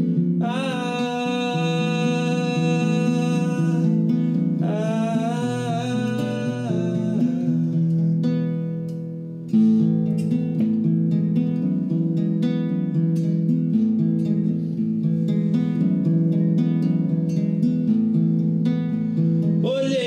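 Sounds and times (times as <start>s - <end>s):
acoustic guitar chords: 0.0s - 20.0s
man singing long notes: 0.4s - 8.0s, 19.6s - 20.0s.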